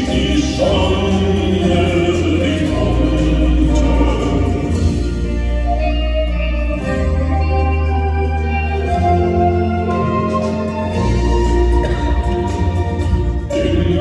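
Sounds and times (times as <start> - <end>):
man singing lead: 0.0 - 5.3, 13.5 - 14.0
acoustic guitar: 0.0 - 14.0
keyboard: 0.0 - 14.0
piano: 0.0 - 14.0
steady bass: 0.0 - 14.0.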